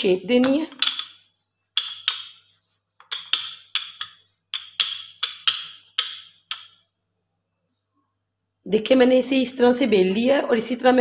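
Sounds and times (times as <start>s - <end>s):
rolling pin clacking on marble: 0.0s - 6.8s.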